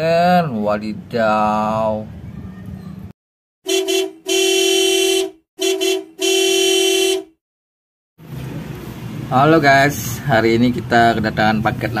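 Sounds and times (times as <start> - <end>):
car horn honking: 3.6 - 7.4.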